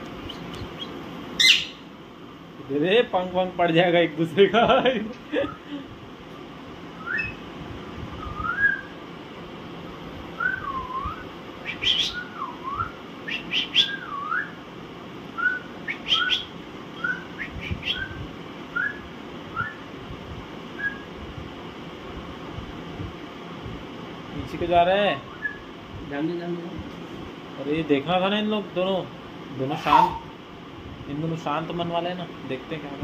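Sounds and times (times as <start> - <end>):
parakeets whistling calls: 0.2 - 1.9, 7.0 - 7.5, 8.2 - 9.0, 10.4 - 14.6, 15.4 - 19.8, 20.8 - 21.1, 25.2 - 25.7, 29.7 - 30.4
shrill parakeet squawks: 1.4 - 1.8, 11.7 - 12.3, 29.8 - 30.3.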